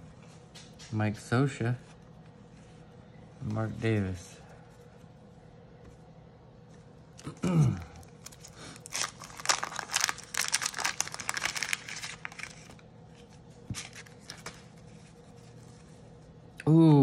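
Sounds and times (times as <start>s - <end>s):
handling cards: 7.9s - 16.2s
wrapper tearing and crinkling: 8.0s - 12.8s.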